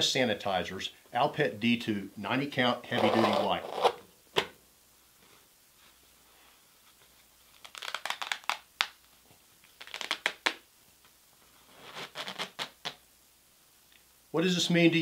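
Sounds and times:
crinkly rustling of wipe: 5.8s - 10.6s.

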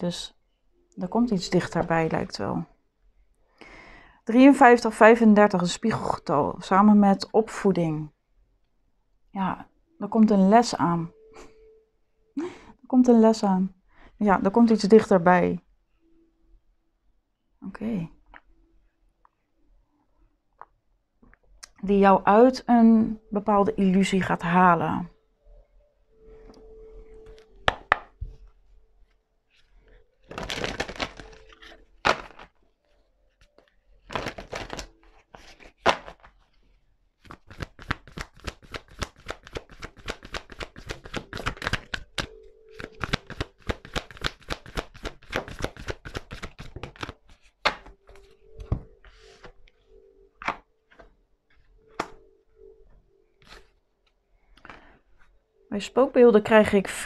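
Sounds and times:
cards knocking on table: 27.6s - 28.1s, 47.6s - 47.9s
cards being handled: 29.6s - 32.6s, 33.4s - 36.6s, 37.2s - 49.7s, 50.4s - 52.2s, 53.4s - 53.8s.

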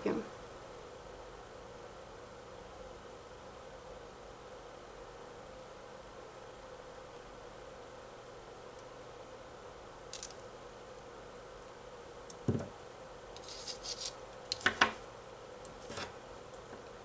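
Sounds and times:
beads rustling and clicking: 10.1s - 10.4s.

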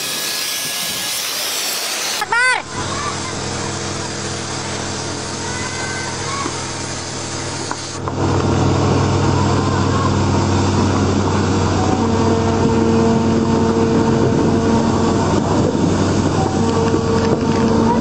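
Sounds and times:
wind noise: 0.0s - 3.2s, 7.6s - 18.0s
low engine rumble: 0.0s - 18.0s
steady low tone: 2.6s - 18.0s.

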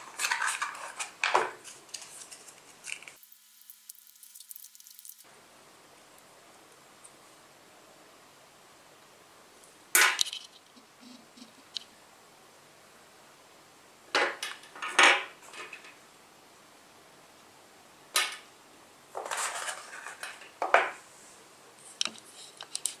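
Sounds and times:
plastic items clattering on glass: 19.2s - 21.0s.

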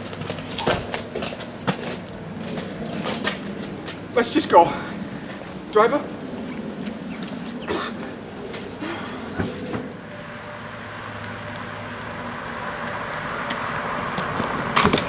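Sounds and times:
car approaching on wet road: 4.8s - 15.0s.

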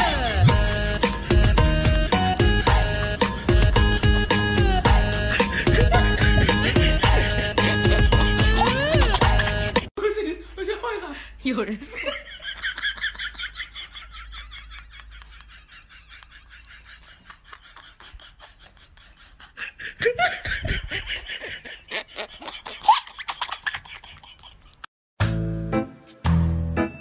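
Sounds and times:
music: 0.0s - 9.9s, 25.2s - 27.0s
people laughing: 4.8s - 11.2s, 11.8s - 22.8s.

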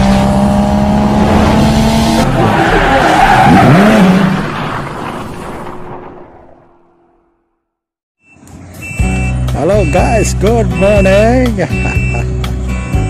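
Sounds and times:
car engine revving: 0.0s - 4.6s.

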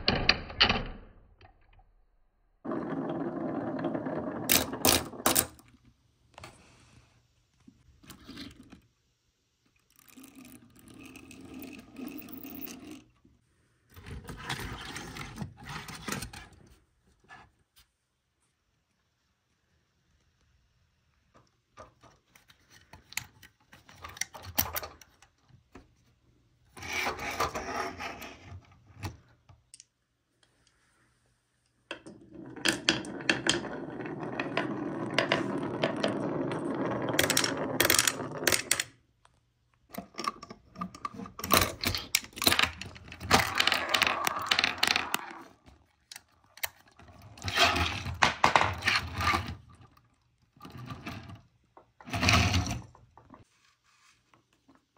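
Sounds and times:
marbles rolling down wooden slope: 2.6s - 5.6s, 31.9s - 39.0s, 42.0s - 45.7s
marbles clicking together: 43.3s - 45.4s.

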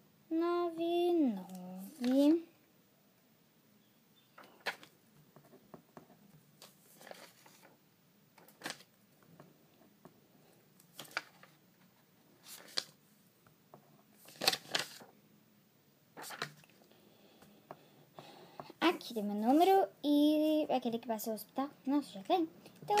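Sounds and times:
paper rustling: 1.5s - 2.3s, 4.4s - 5.6s, 6.6s - 7.8s, 8.4s - 8.9s, 10.9s - 13.0s, 14.2s - 15.1s, 16.2s - 16.8s, 22.8s - 23.0s.

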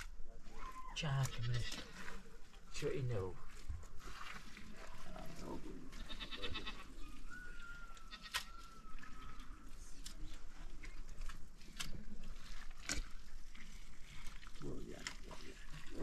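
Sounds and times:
livestock bleating: 1.2s - 2.1s, 5.9s - 7.0s.

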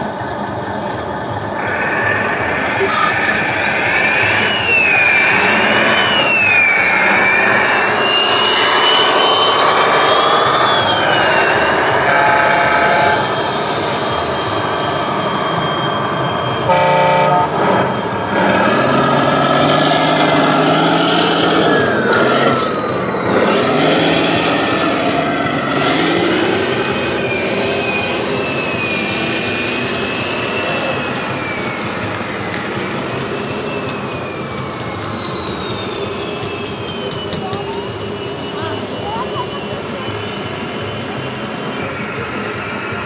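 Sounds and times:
hall noise: 0.0s - 43.0s
air horn toot: 11.1s - 13.4s, 16.6s - 17.8s.

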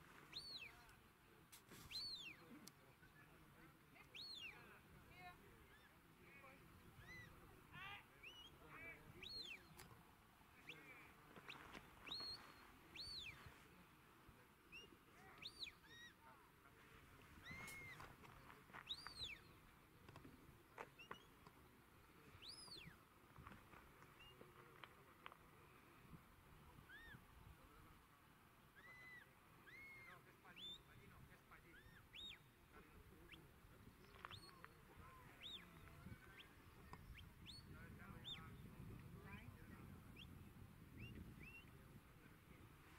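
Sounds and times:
bird chirps and whistles: 0.3s - 0.7s, 1.9s - 2.4s, 4.2s - 4.6s, 7.0s - 7.3s, 11.5s - 13.4s, 14.8s - 16.1s, 18.9s - 19.5s, 22.4s - 23.0s, 28.8s - 30.9s, 31.8s - 32.5s
short faint whistles: 0.3s - 0.8s, 1.7s - 2.5s, 11.5s - 13.5s, 17.4s - 18.1s, 22.4s - 23.0s, 26.9s - 27.2s, 28.8s - 30.9s, 41.0s - 41.8s.

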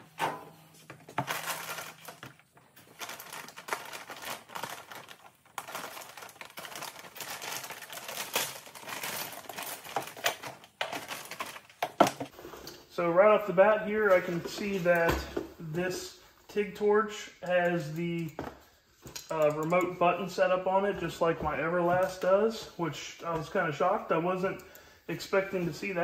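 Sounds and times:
plastic bag crinkling: 0.9s - 12.3s.

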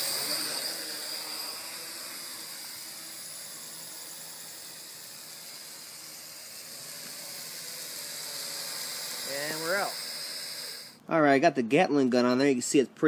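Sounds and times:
quadcopter motors whirring: 0.0s - 11.0s.

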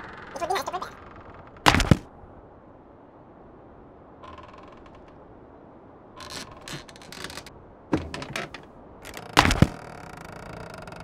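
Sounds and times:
clicking and rattling: 6.2s - 11.0s.

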